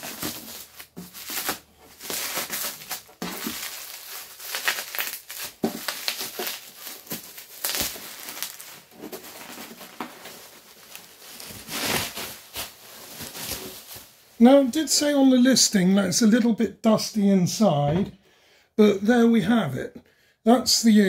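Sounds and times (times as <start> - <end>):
bubble wrap crinkling: 0.0 - 14.4.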